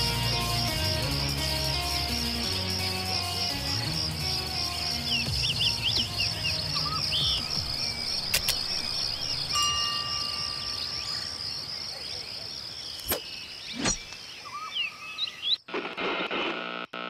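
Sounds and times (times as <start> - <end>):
insects chirping chorus: 0.0 - 15.7
sharp clicks: 8.2 - 8.9.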